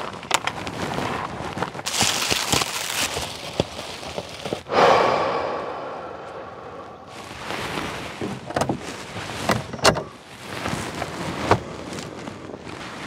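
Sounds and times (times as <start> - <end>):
bedding rustling: 7.1 - 13.0.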